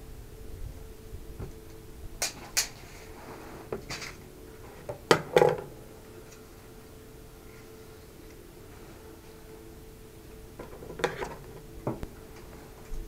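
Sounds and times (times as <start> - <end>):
faint steady hum: 0.0 - 13.0
tools clicking and knocking on wood: 10.6 - 12.1.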